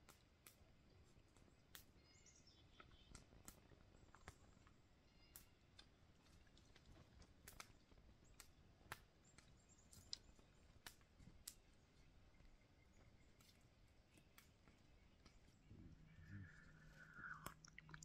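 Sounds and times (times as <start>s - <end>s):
faint sharp clicks: 0.0s - 18.0s
faint bird chirps: 1.4s - 5.7s, 11.6s - 18.0s.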